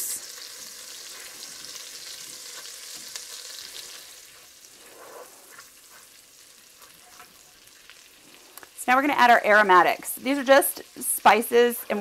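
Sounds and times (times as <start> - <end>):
oil and butter sizzling: 0.0 - 12.0.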